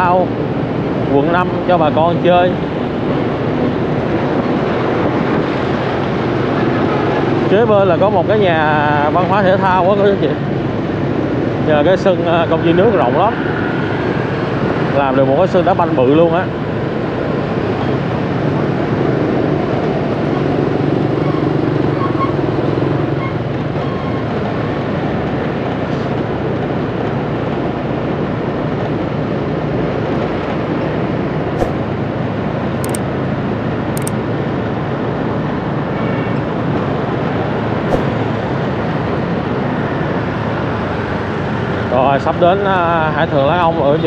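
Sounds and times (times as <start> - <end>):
motorbike engine and road noise: 30.0 - 35.3, 36.6 - 42.0
sharp clicks: 31.6 - 31.9, 32.8 - 33.0, 37.9 - 38.2.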